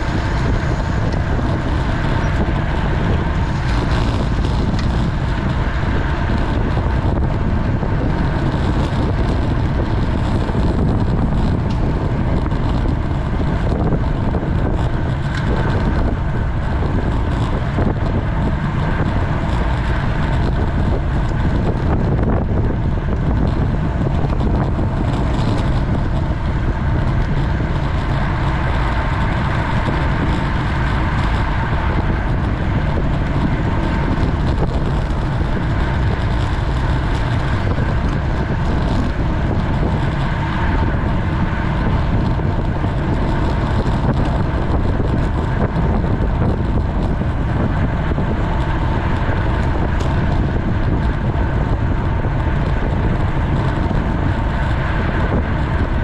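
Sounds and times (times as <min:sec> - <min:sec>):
bicycle tyre road noise: 0:00.0 - 0:56.0
wind rush on microphone: 0:00.0 - 0:56.0.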